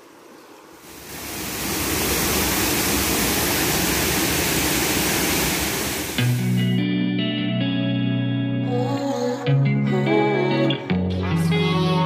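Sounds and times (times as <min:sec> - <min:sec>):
water rushing over rocks: 0:00.8 - 0:06.4.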